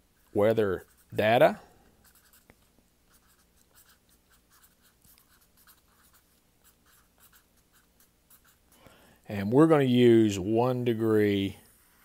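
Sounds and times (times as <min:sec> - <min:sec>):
marker scratching on paper: 0:00.2 - 0:08.8, 0:11.6 - 0:12.0.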